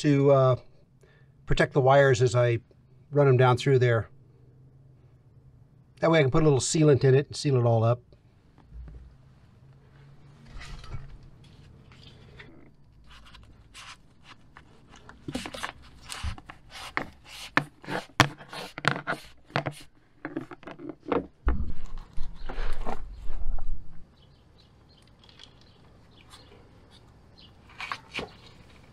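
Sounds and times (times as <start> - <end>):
cable rubbing and scraping: 10.4 - 23.7.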